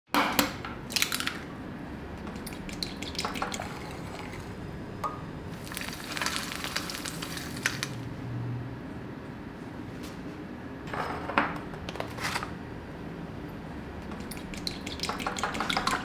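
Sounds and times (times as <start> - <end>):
egg sizzling in oil: 5.6 - 8.0.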